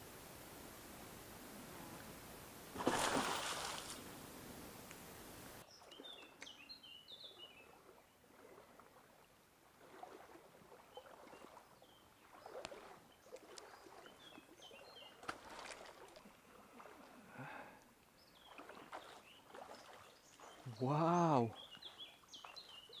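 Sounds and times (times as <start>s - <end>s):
faint stream water: 0.0s - 23.0s
animal diving with splash: 2.7s - 4.1s, 15.1s - 17.1s
bird chirping: 5.6s - 8.2s, 18.2s - 23.0s.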